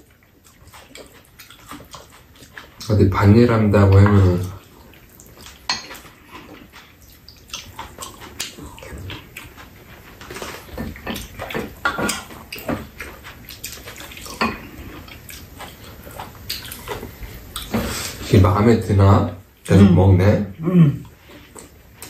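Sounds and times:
wet chewing: 0.0s - 18.3s, 21.0s - 22.0s.

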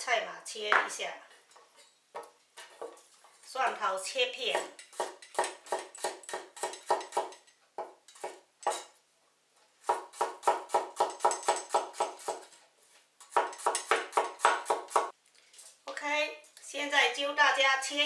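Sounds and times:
cleaver chopping on wooden board: 13.3s - 15.1s.

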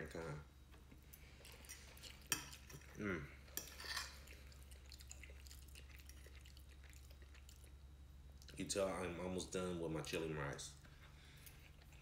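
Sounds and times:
eating sounds: 1.0s - 8.7s.

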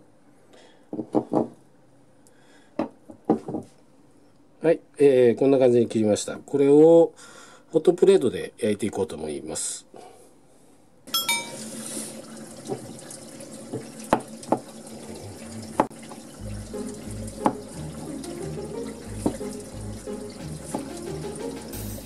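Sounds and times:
knife knocking on cutting board: 17.4s - 17.6s
steady hiss: 21.5s - 22.0s.

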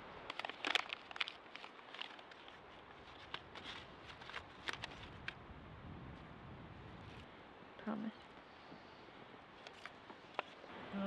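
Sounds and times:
twigs crackling in campfire: 0.0s - 5.4s.

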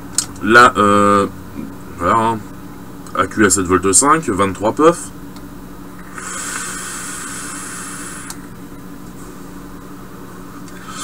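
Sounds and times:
vape coil hissing: 6.0s - 8.5s.

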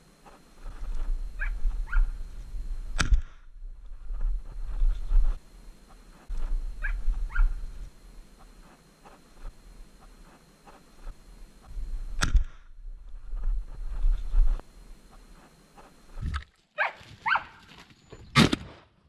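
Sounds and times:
dogs barking in high yelps: 1.4s - 2.2s, 6.8s - 7.6s, 16.8s - 17.6s
sharp click: 2.9s - 3.4s, 12.1s - 12.7s.

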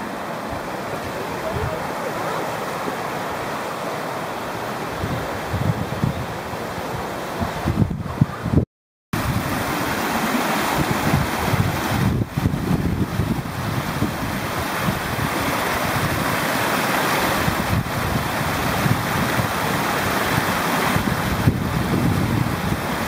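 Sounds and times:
water rushing over a weir: 0.0s - 8.6s, 9.2s - 23.0s
wind rumble on microphone: 4.9s - 8.6s, 9.2s - 23.0s.

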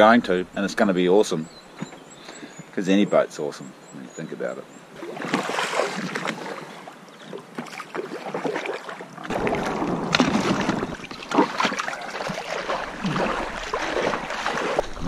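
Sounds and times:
person wading in water: 5.0s - 15.0s
shallow water splashing: 5.0s - 15.0s.

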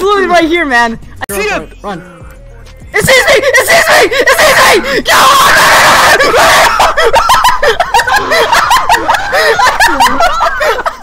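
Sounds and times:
person giggling: 6.7s - 11.0s.

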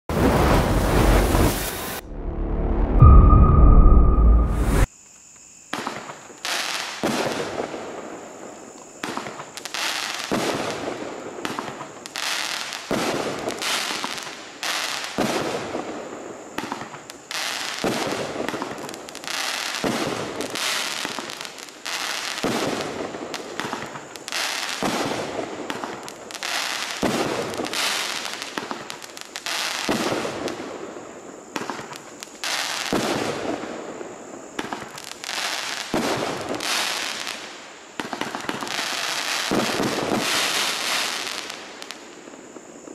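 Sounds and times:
firework bangs: 0.1s - 2.0s.

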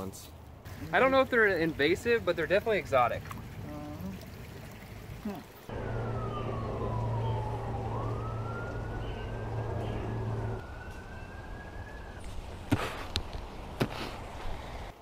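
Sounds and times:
siren wailing: 5.7s - 12.6s
low steady hum: 5.7s - 14.9s.

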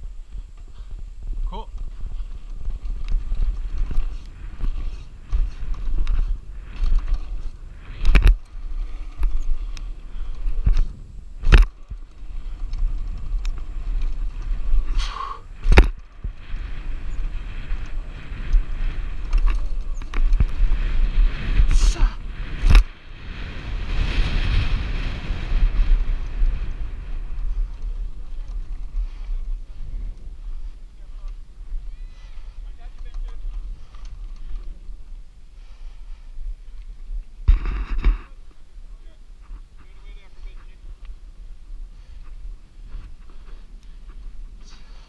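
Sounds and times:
tyres rolling on dirt: 0.0s - 35.5s
wind rumble on microphone: 0.0s - 45.0s
bike clunks and rattles: 1.7s - 14.9s, 15.6s - 20.8s.

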